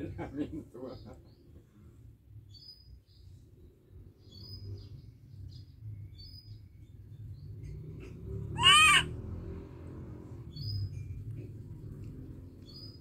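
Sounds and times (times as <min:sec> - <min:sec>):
small birds chirping: 0:00.8 - 0:09.1, 0:10.2 - 0:13.0
macaque high call: 0:08.5 - 0:09.1.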